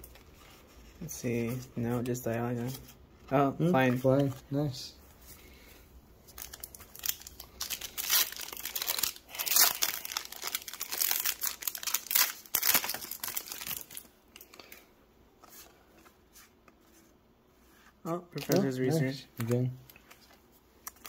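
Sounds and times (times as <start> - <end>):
faint handling of cards: 0.0 - 21.0
foil wrapper tearing and crinkling: 6.3 - 14.1.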